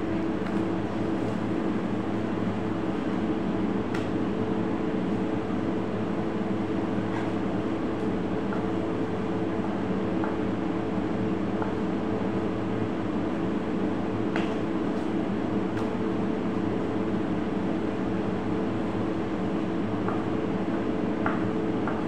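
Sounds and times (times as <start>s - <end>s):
steady machine hum: 0.0s - 22.0s.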